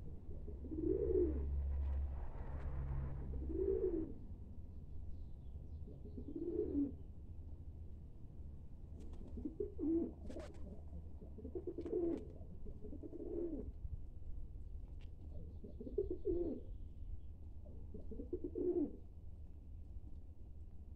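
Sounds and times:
pigeons cooing: 0:00.0 - 0:01.6, 0:03.3 - 0:04.2, 0:05.9 - 0:07.0, 0:09.0 - 0:13.8, 0:15.3 - 0:16.7, 0:17.9 - 0:19.0.

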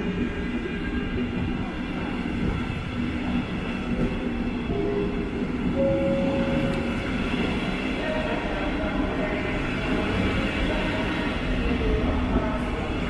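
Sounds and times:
train wheels rumbling on rail: 0:00.0 - 0:13.0
high tone: 0:05.8 - 0:06.9.

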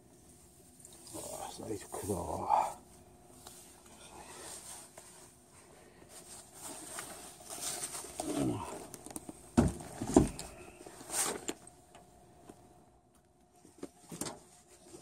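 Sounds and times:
handling rustling: 0:06.0 - 0:11.8.

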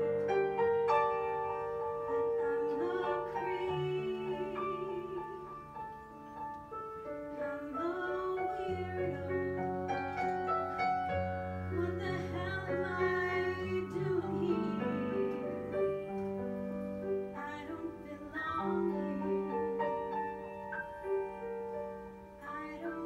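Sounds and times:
piano chords: 0:00.0 - 0:23.0
woman singing: 0:01.2 - 0:05.9, 0:07.2 - 0:10.5, 0:11.7 - 0:15.8, 0:17.3 - 0:20.5, 0:22.4 - 0:23.0.

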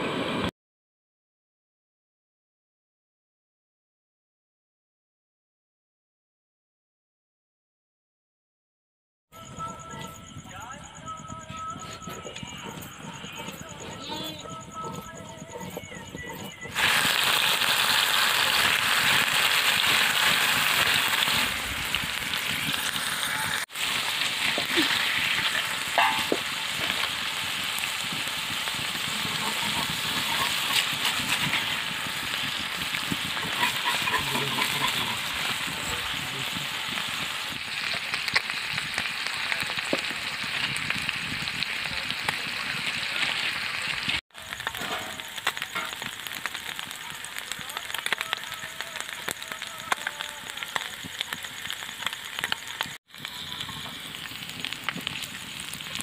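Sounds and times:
fish frying in hot oil: 0:15.5 - 0:56.0.

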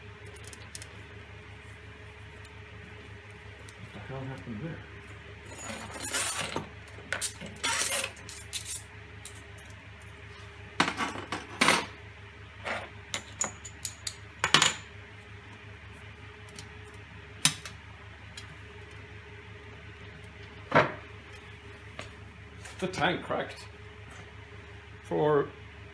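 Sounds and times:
metal washers and nuts clinking: 0:05.4 - 0:09.5, 0:13.1 - 0:14.9.

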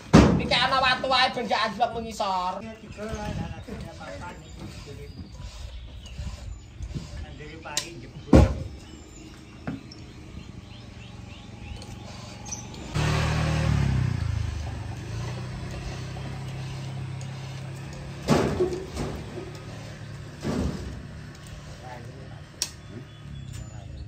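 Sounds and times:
wooden logs thudding: 0:00.1 - 0:00.8
engine running: 0:02.7 - 0:24.0.

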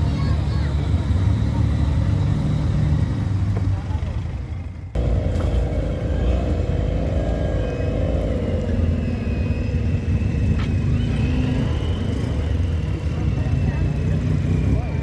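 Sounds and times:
engine rumbling under load: 0:00.0 - 0:15.0.

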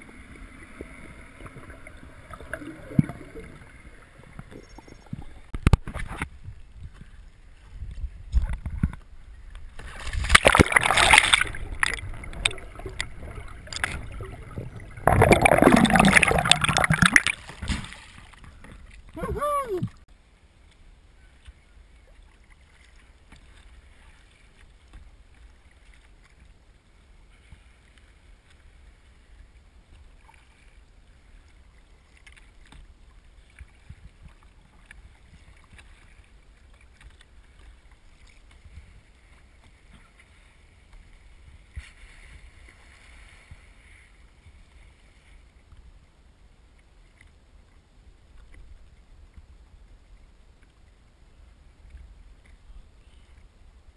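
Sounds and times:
water splashes and drips: 0:00.0 - 0:06.3, 0:08.4 - 0:20.0
rush of water: 0:00.0 - 0:53.6
low steady rumble: 0:09.0 - 0:21.0.

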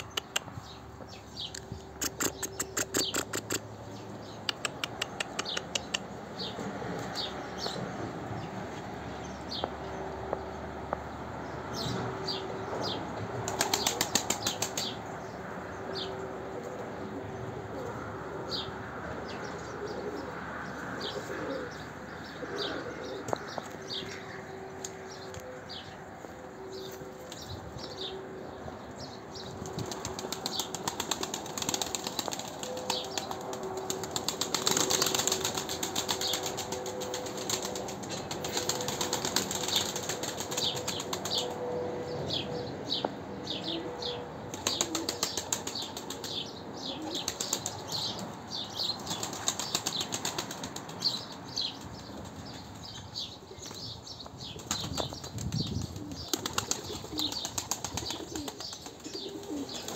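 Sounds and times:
pigeon wings flapping: 0:13.4 - 0:15.0, 0:29.7 - 0:41.5, 0:44.5 - 0:46.4, 0:47.1 - 0:48.0, 0:49.0 - 0:51.3, 0:54.6 - 0:59.9.

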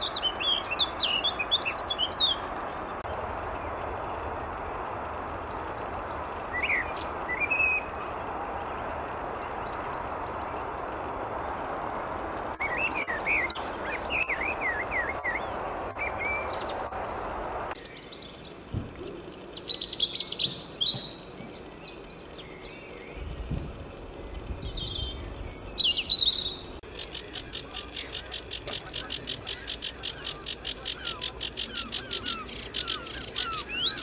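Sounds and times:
blackbird singing: 0:00.0 - 0:03.0, 0:05.5 - 0:08.1, 0:12.6 - 0:17.0, 0:17.8 - 0:34.0
background hiss: 0:00.0 - 0:34.0
rapid twittering birdsong: 0:00.0 - 0:34.0.

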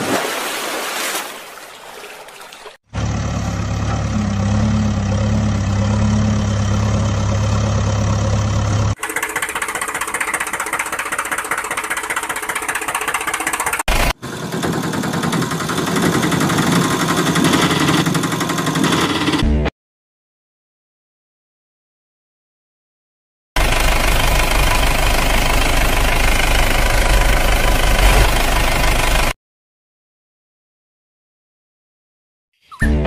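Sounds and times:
engine idling: 0:03.0 - 0:19.4, 0:23.6 - 0:29.3.

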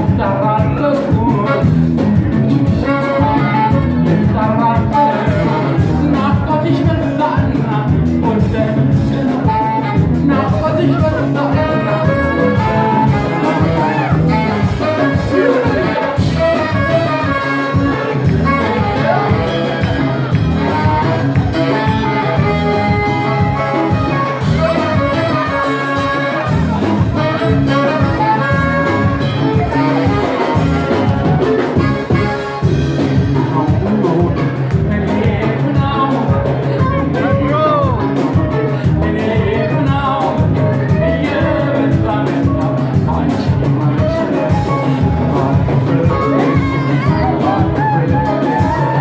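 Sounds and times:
live band playing: 0:00.0 - 0:49.0
saxophone horn line: 0:01.2 - 0:06.2, 0:09.3 - 0:35.0, 0:36.4 - 0:38.8, 0:43.8 - 0:49.0.

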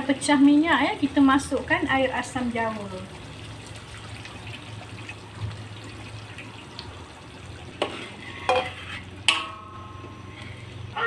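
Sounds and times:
sauce sizzling in a wok: 0:00.0 - 0:11.0
spatula knocking against wok: 0:07.8 - 0:10.3
spatula scraping wok: 0:07.8 - 0:10.8.

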